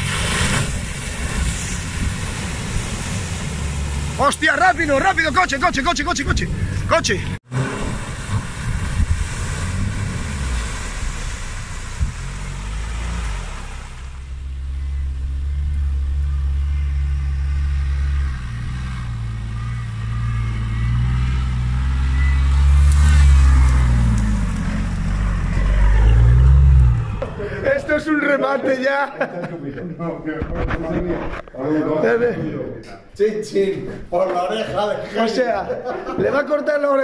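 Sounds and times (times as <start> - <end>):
water and mud splashing: 0.0 - 6.8, 7.4 - 14.6, 17.5 - 27.6
off-road engines working hard: 0.0 - 28.2.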